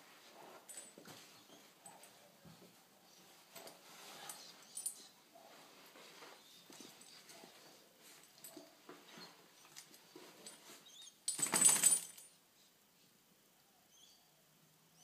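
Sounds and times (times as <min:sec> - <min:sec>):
metal collar jingling: 0:00.6 - 0:02.2, 0:03.6 - 0:05.2, 0:06.7 - 0:12.4
dog rubbing on carpet: 0:03.7 - 0:04.6.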